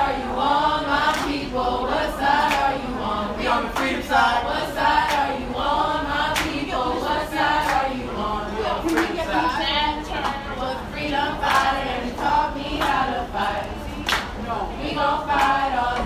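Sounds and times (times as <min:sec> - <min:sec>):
sharp hand claps: 0:06.3 - 0:06.6, 0:08.8 - 0:09.2, 0:14.0 - 0:14.4.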